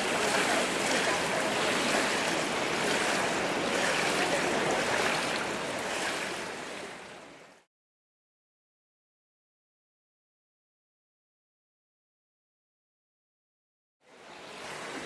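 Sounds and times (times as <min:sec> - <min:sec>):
swimmer splashing pool water: 0:00.0 - 0:07.7.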